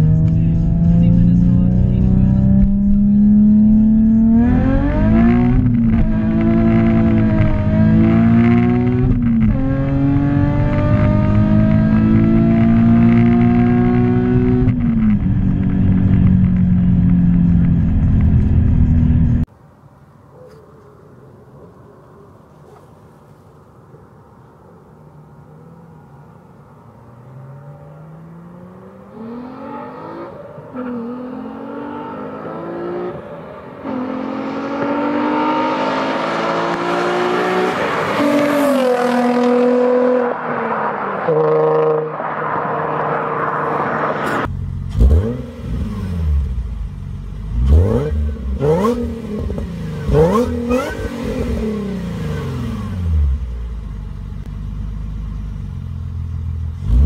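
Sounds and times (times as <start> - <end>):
car engine revving: 0.0 - 19.5, 25.5 - 57.0
car accelerating past with upshifts: 25.5 - 46.3.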